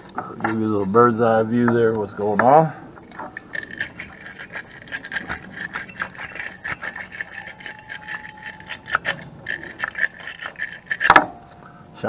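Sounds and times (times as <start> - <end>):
wire brush scraping metal: 3.0 - 11.4.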